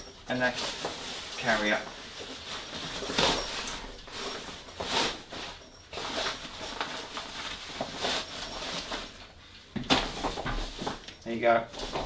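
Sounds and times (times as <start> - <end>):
fabric rustling and rubbing: 0.0 - 9.4.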